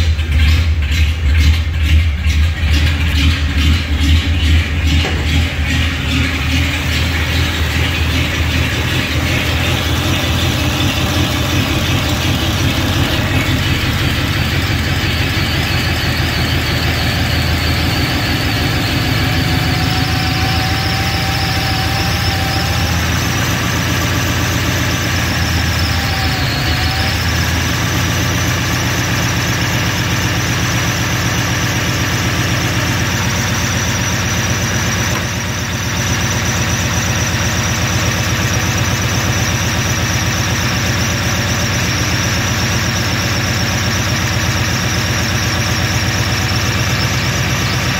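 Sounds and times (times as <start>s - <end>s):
car engine idling: 0.0s - 47.9s.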